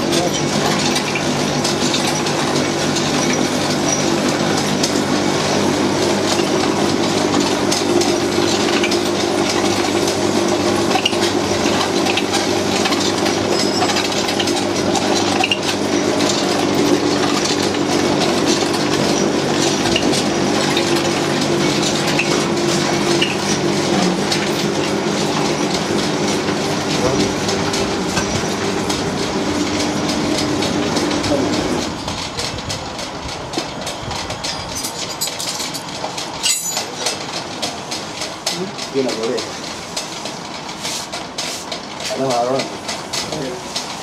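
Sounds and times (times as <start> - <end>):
grinding machine motor droning: 0.0 - 34.7.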